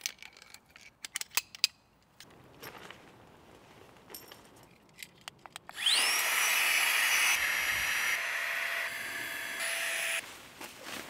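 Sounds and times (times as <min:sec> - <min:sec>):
electric air pump whining: 0:05.8 - 0:10.2.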